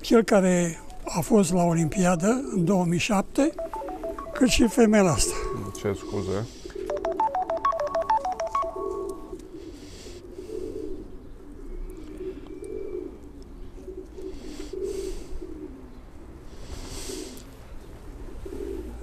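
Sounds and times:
phone keypad beeps: 0.8 - 2.7, 3.5 - 6.2, 6.9 - 9.4
pigeons cooing: 8.9 - 19.0.

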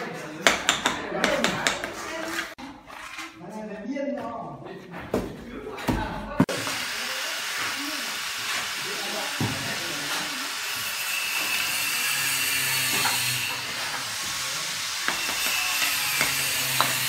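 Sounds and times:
bricks and trowel knocking: 0.4 - 2.6, 15.0 - 17.0.

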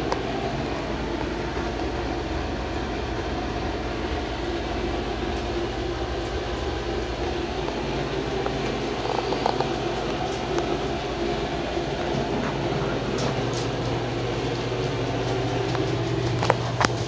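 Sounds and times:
mechanical hum: 0.0 - 17.0.

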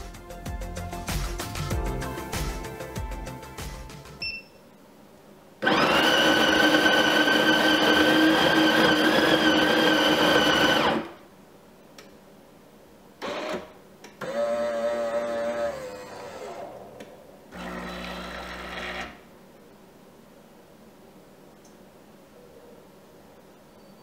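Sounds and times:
coffee grinder running: 5.6 - 11.1, 17.5 - 19.2
coffee machine pump whirring: 17.5 - 19.2.

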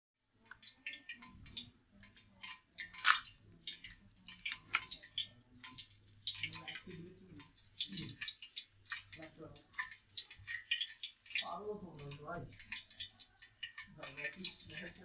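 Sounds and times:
crab shell cracking: 0.5 - 6.8.

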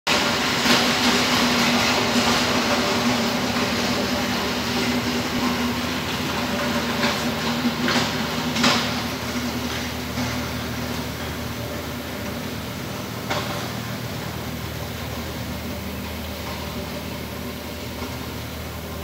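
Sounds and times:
steady mechanical hum: 0.1 - 19.0.

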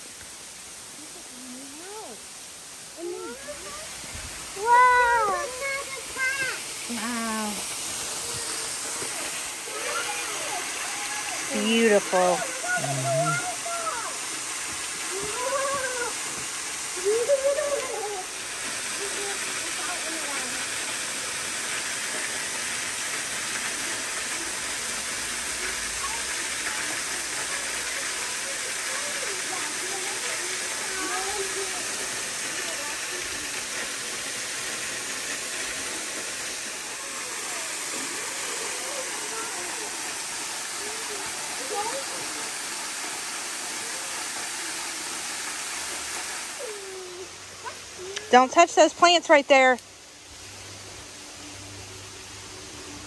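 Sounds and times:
waterfall rushing: 0.0 - 53.0
faint voice: 12.6 - 14.1.

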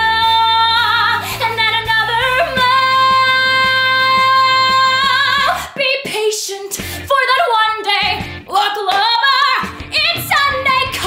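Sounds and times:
backing track: 0.0 - 6.2, 6.8 - 11.0
woman singing pop song: 0.0 - 11.0.

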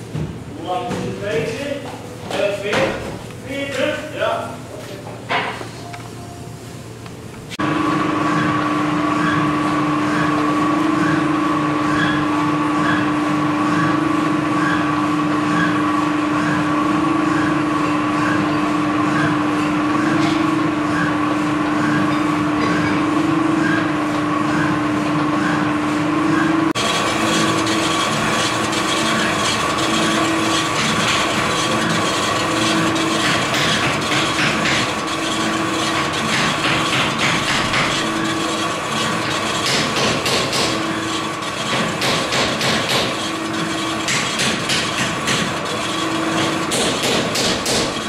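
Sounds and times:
lathe whining and humming: 1.2 - 48.0
cutting tool scraping metal: 26.8 - 48.0.

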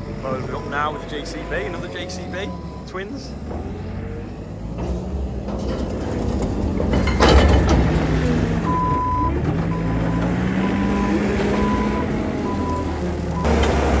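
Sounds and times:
diesel engine working hard: 0.0 - 14.0
reversing alarm beeps: 8.7 - 13.5.

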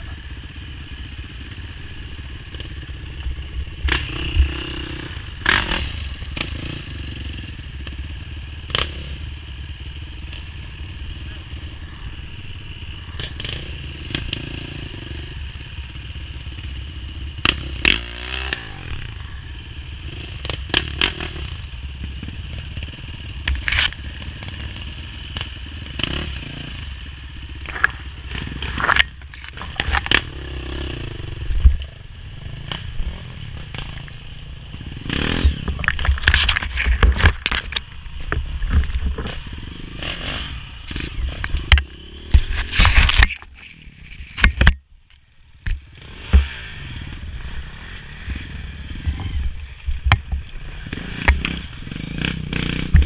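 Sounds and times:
dirt bike engine at low revs: 0.0 - 53.0
branches scraping against bike: 20.0 - 53.0.

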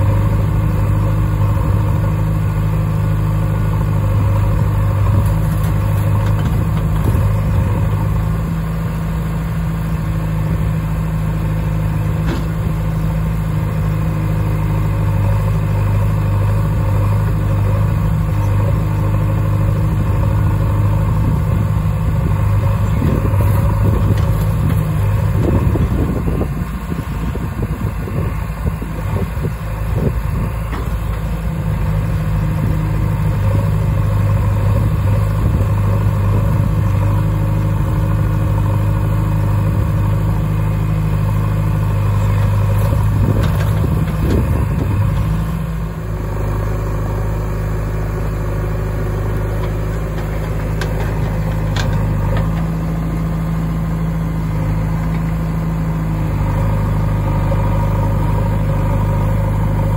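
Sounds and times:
diesel engines idling: 0.0 - 59.9
knocks and clatter of soil: 4.3 - 8.3, 12.0 - 13.0, 21.6 - 40.3, 41.9 - 57.0.

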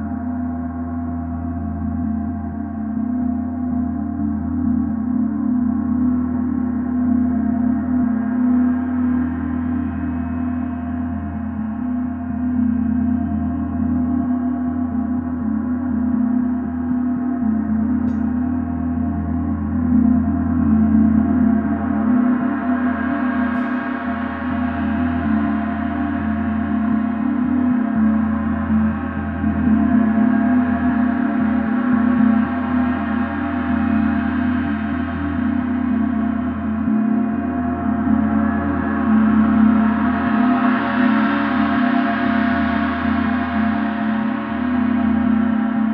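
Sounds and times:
gong drone with shimmering overtones: 0.0 - 45.9.

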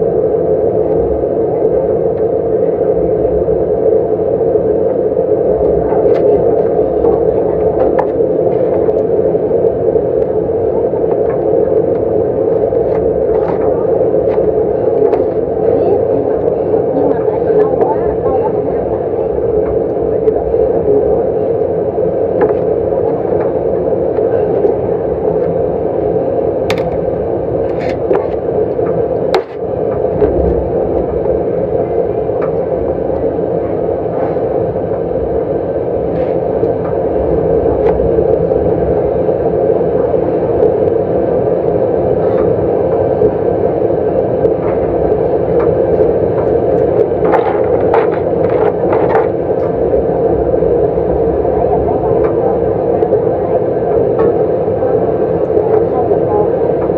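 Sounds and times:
loud steady hum: 0.0 - 56.9.

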